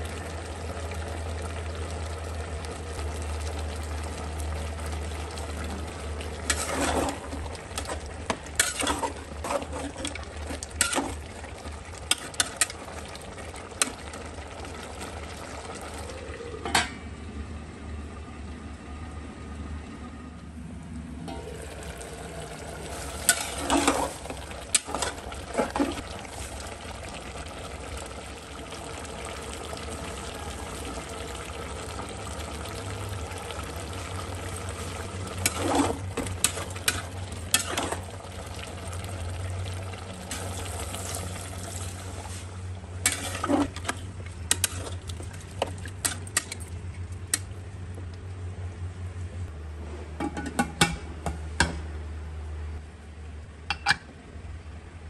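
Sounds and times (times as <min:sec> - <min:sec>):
low simmering sizzle: 0:00.0 - 0:55.0
metal spatula scraping pot: 0:06.4 - 0:11.2, 0:22.9 - 0:26.0, 0:35.3 - 0:38.1, 0:43.0 - 0:45.0
metal lid clanks: 0:16.6 - 0:17.1, 0:53.7 - 0:54.1.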